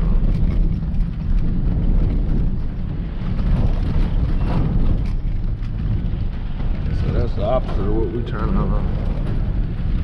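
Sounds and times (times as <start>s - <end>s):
faint knocks and rattles: 0.0s - 10.0s
truck engine and tyres rumbling: 0.0s - 10.0s.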